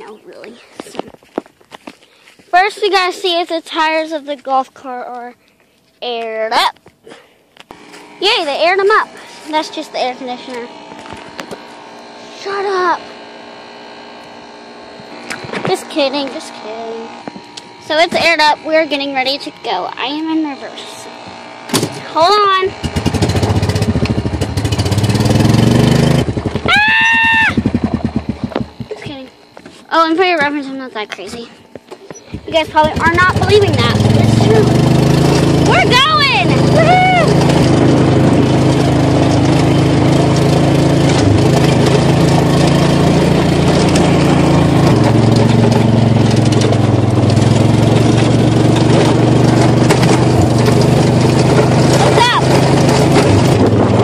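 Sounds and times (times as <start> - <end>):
small engine pulling away: 7.7 - 28.9, 32.3 - 54.0.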